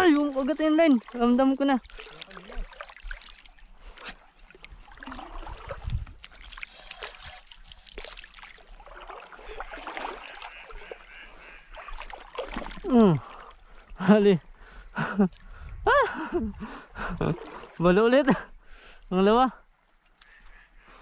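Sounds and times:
seawater splashing: 0.0s - 14.0s, 16.6s - 18.4s.

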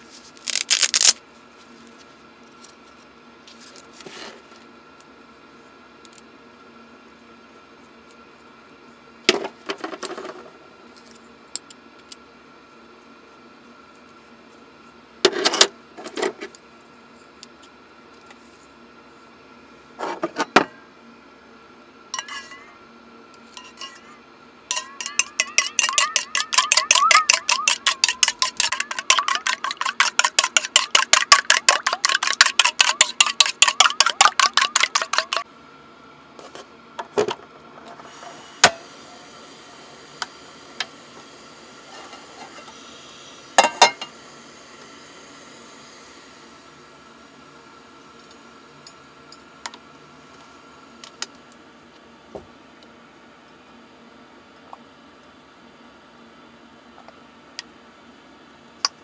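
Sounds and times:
dishes clinking: 24.7s - 35.4s, 43.6s - 44.1s
utensil beating against dish: 24.7s - 35.4s.

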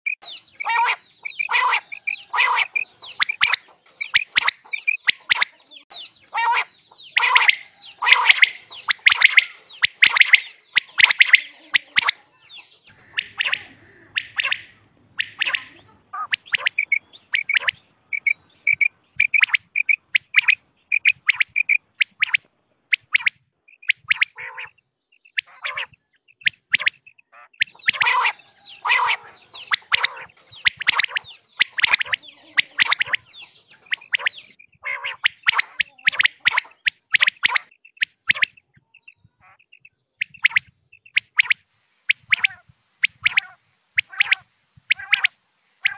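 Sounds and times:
quail calling: 0.0s - 45.9s.

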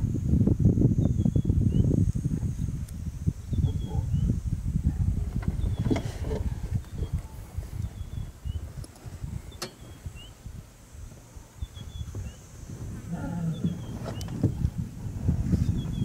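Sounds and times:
lion growling: 13.0s - 14.2s.

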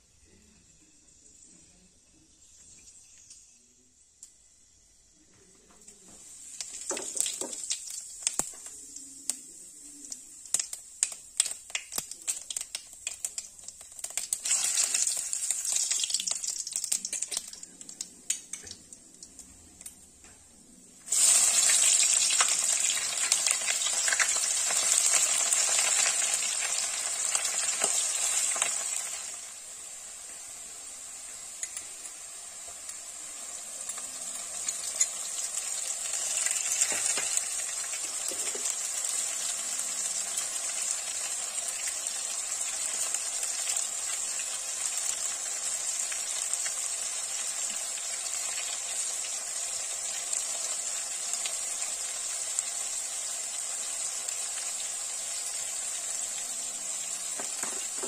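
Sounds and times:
hot oil sizzling with pops: 2.4s - 58.0s
onions sizzling in oil: 6.1s - 19.4s, 20.5s - 58.0s.

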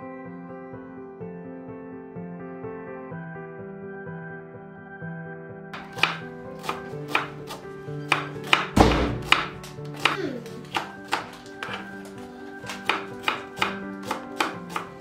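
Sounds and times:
soft background music: 0.0s - 15.0s
knife chopping onion on board: 5.8s - 15.0s.

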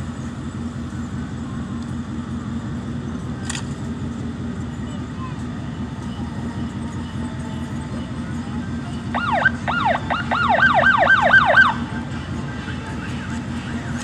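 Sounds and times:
car and road noise: 0.0s - 14.0s
siren yelping: 9.1s - 11.8s.

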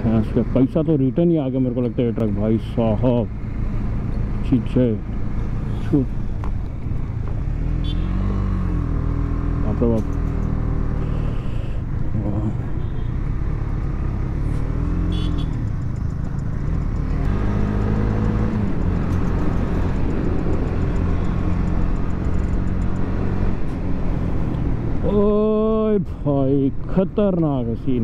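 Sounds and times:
motorcycle engine accelerating: 6.7s - 11.4s, 13.2s - 25.6s.

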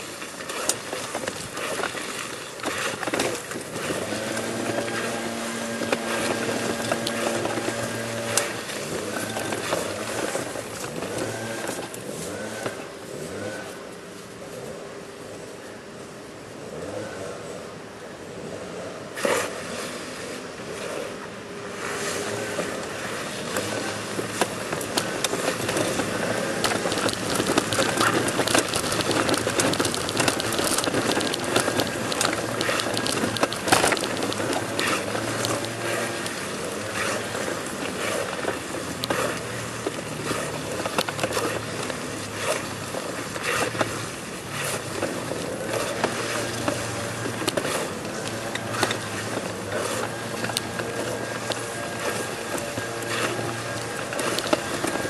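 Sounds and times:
body scraping on stone paving: 21.8s - 55.0s.

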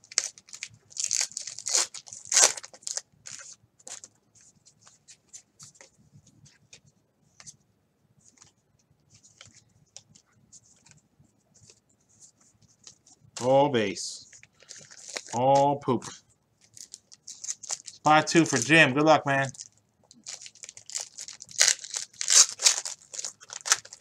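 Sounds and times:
wrapper torn open crinkling: 0.0s - 4.1s, 14.4s - 15.4s, 16.0s - 18.8s, 19.4s - 24.0s.

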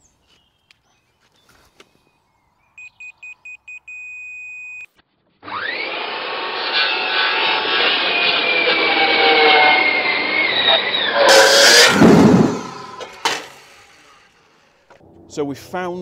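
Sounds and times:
circular saw cutting wood: 5.4s - 14.8s.

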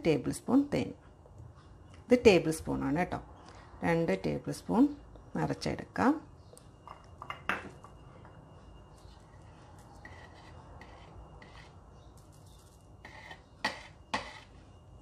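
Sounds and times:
spoon stirring in bowl: 6.8s - 14.8s.

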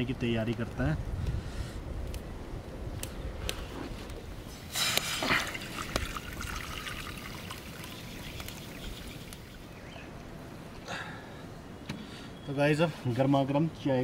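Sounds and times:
water pouring into pot: 4.7s - 9.8s.

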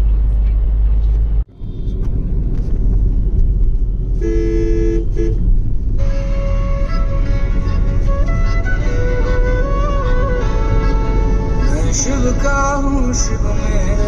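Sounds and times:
car road rumble: 0.0s - 14.0s
two-tone car horn honking: 4.2s - 8.5s
flute music: 6.0s - 13.2s.

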